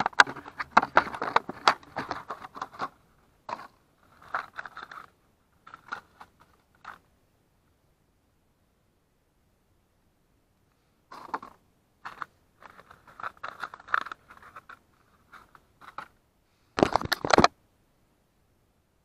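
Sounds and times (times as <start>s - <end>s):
cardboard and plastic rustling: 0.0s - 7.0s, 11.1s - 16.2s, 16.8s - 17.5s.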